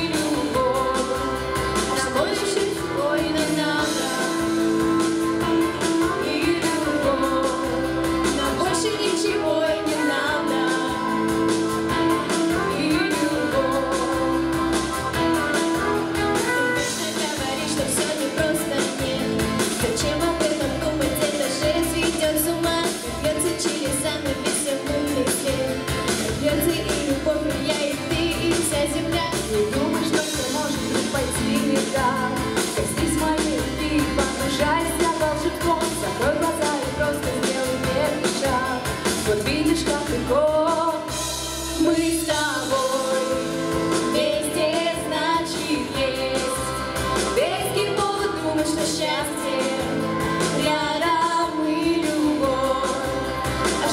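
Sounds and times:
backing track: 0.0 - 53.9
girls singing a duet: 12.1 - 15.3, 41.8 - 53.9.

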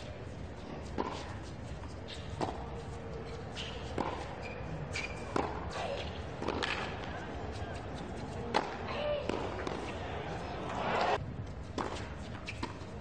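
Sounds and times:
racket hitting tennis ball: 0.8 - 2.8, 3.5 - 7.3, 8.1 - 10.0, 10.7 - 12.9.

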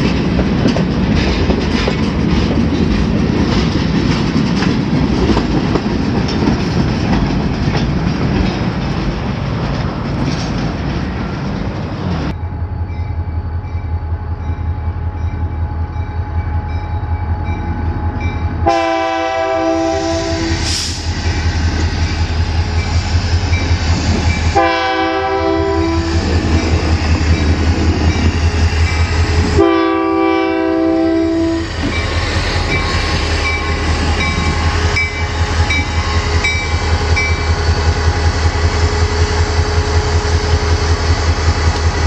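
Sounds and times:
locomotive air horn blasts: 18.6 - 21.0, 24.5 - 26.4, 29.5 - 31.7.

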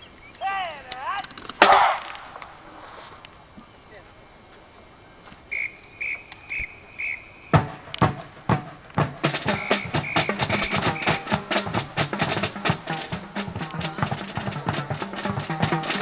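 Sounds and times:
marching snare and bass drums: 1.2 - 2.4, 7.0 - 16.0
short high whistle blasts: 5.5 - 7.3, 9.4 - 11.4.

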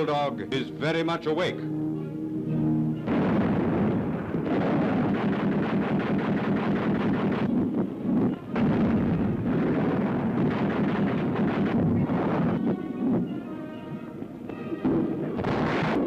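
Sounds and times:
anti-aircraft guns firing rapidly: 3.1 - 12.8, 15.4 - 16.0.

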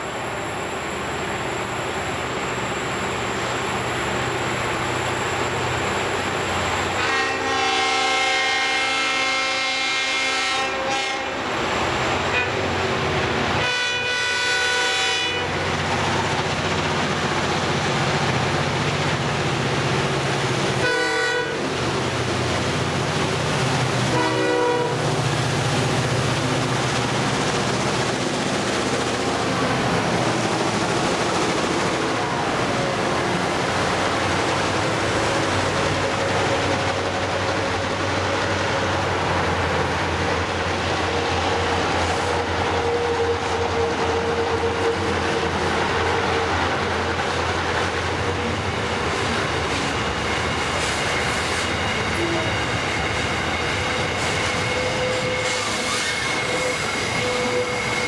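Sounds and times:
diesel locomotive engines rumbling: 0.0 - 58.0
train running noise: 0.0 - 58.0
train horn blasts: 6.9 - 11.5, 12.3 - 12.6, 13.6 - 15.6, 20.8 - 21.7, 24.1 - 25.2, 54.4 - 58.0.

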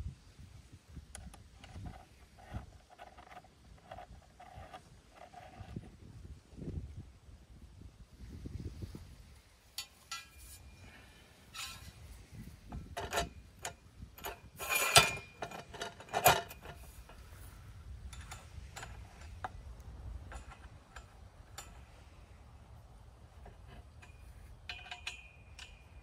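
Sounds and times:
metal pipe clinking and scraping: 1.2 - 5.9, 9.7 - 22.3, 23.2 - 26.0
metal clanking: 9.7 - 17.4, 23.4 - 26.0.

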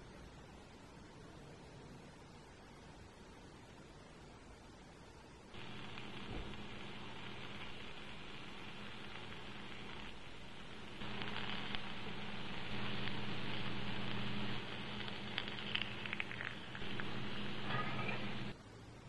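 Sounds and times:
low hum: 5.5 - 19.0
oil sizzling in a skillet: 5.6 - 18.5
sharp crackles: 5.6 - 18.6.

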